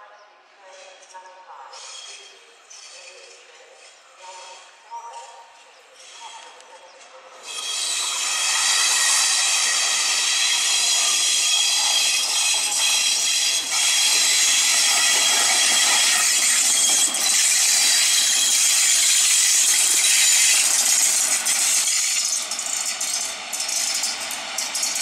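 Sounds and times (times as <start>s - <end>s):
locomotive cooling blowers hissing: 7.6s - 25.0s.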